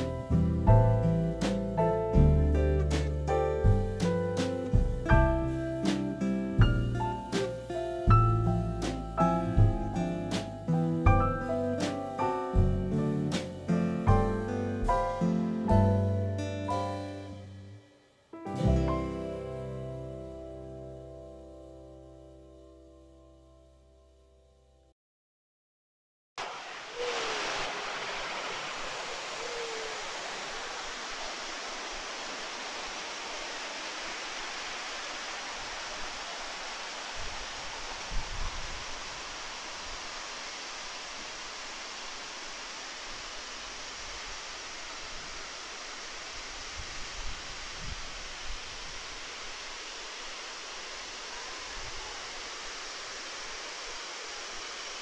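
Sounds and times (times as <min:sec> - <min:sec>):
low thumps: 0:00.0 - 0:05.7
waterfall rushing: 0:26.4 - 0:55.0.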